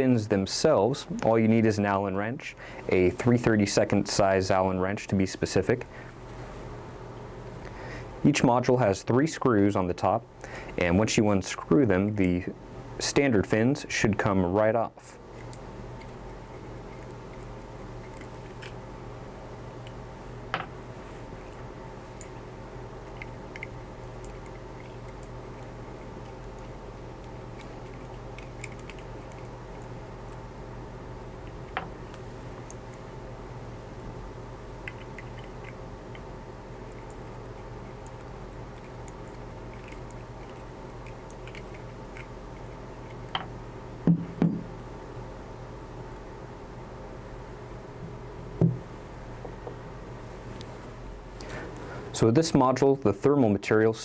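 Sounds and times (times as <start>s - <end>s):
low hum: 14.4s - 52.5s
screw knocking on tabletop: 44.1s - 44.7s, 48.6s - 48.8s.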